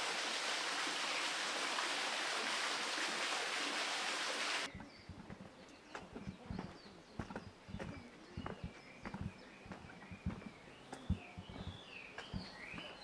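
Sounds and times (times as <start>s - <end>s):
running splashing water: 0.0s - 5.5s
light footsteps: 4.7s - 13.0s.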